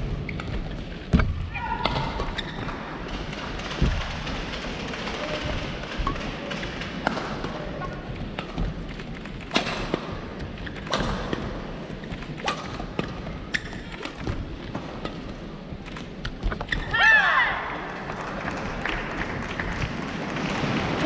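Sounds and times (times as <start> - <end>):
echoing arena hum: 0.0 - 21.0
racket striking shuttlecock: 12.3 - 15.3.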